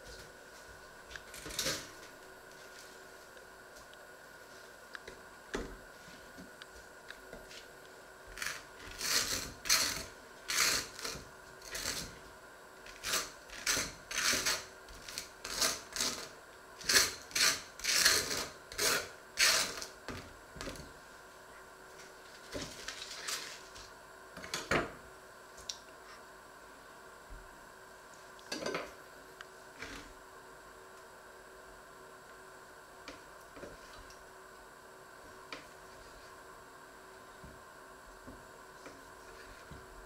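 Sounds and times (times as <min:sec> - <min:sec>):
knife scraping butter on bread: 0:08.4 - 0:12.2, 0:12.9 - 0:19.9.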